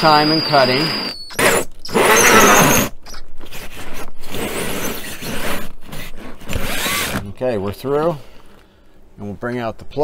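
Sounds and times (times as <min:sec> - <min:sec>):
drill with hole saw cutting: 0:00.0 - 0:07.2.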